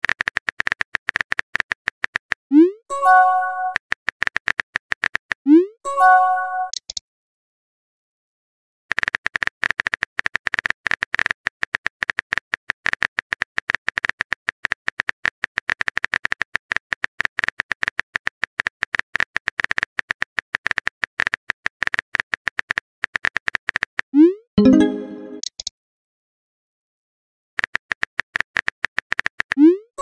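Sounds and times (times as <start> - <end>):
keyboard typing clicks: 6.7 - 7.0, 24.6 - 25.7.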